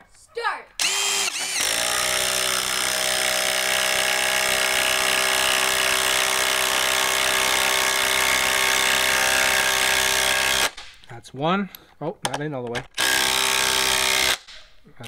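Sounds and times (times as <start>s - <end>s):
impact driver hammering: 0.8s - 11.0s, 13.0s - 14.7s.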